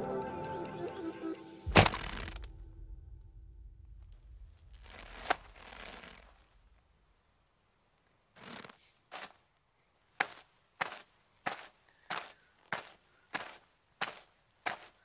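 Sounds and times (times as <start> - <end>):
cartoon rustling swish: 1.7 - 3.1
quick cartoon footsteps: 10.2 - 15.0.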